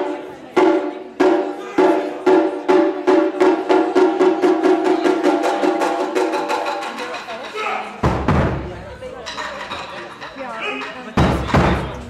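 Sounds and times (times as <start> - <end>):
taiko drum strikes: 0.0 - 8.8, 11.2 - 12.0.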